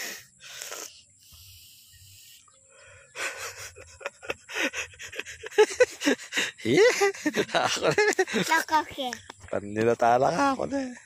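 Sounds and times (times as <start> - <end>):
girl giggling: 3.2 - 8.8.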